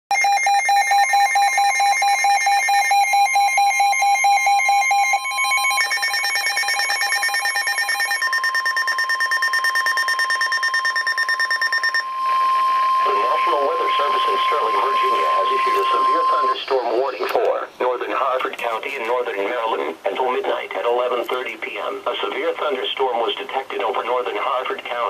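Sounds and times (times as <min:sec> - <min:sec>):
rapid electronic alarm beeping: 0:00.1 - 0:17.2
steady warning tone: 0:00.1 - 0:17.3.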